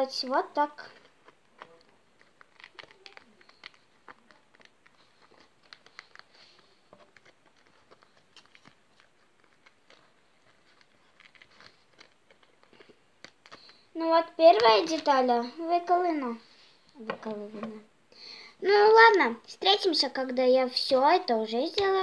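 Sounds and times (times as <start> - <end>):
foam sheet crackling and creaking: 0.2 - 16.0.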